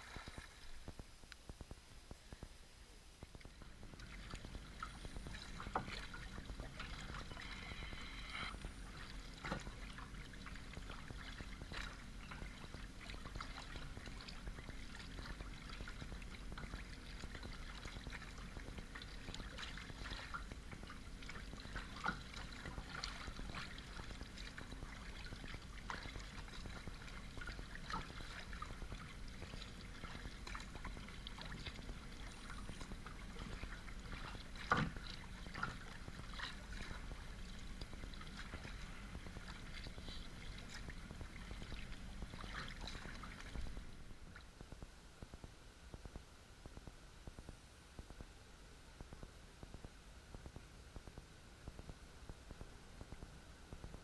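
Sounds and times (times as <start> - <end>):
water splashing against kayak: 0.0 - 1.2, 3.2 - 44.8.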